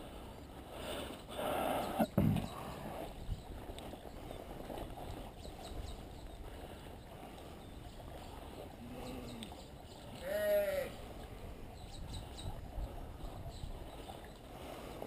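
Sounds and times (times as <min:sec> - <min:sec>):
sheep bleating: 0:10.2 - 0:11.0.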